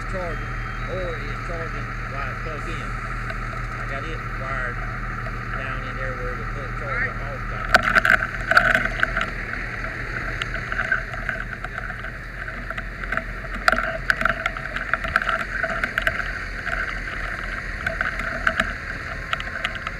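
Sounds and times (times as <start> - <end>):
fire truck engine humming: 0.0 - 19.9
camera rustling against clothing: 7.6 - 19.9.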